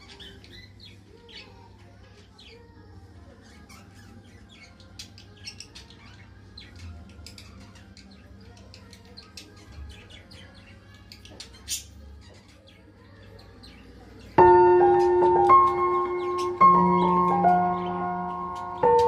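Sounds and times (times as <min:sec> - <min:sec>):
cockatiels chirping: 0:14.5 - 0:19.0.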